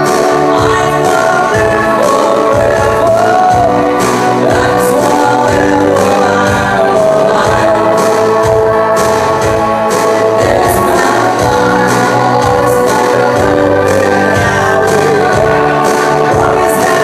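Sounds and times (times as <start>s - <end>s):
keyboard: 0.0s - 17.0s
person singing into microphone: 0.0s - 17.0s.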